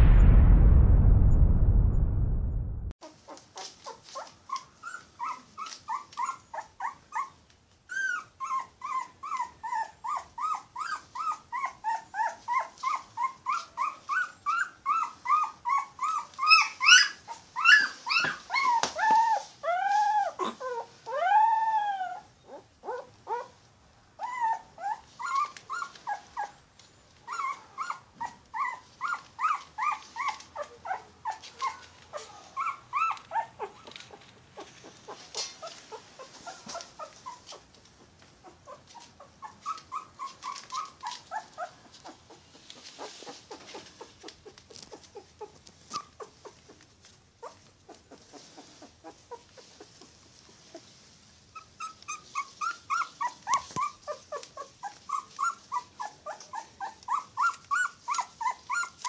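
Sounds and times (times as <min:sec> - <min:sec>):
puppy whimpering: 0:04.2 - 0:23.6, 0:24.2 - 0:26.6, 0:27.3 - 0:33.9, 0:34.6 - 0:37.7, 0:38.4 - 0:46.6, 0:51.5 - 0:59.0.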